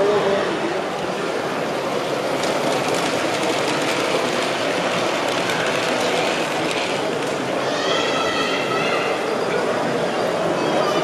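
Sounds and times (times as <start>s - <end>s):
exhibition hall background noise: 0.0s - 11.0s
model train wheels rumbling: 1.1s - 7.6s.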